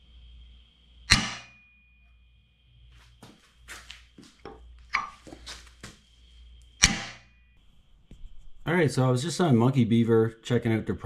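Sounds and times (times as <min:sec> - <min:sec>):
faint steady high tone: 0:01.2 - 0:02.8
footsteps: 0:02.9 - 0:06.3
clothing rustling: 0:05.1 - 0:06.1.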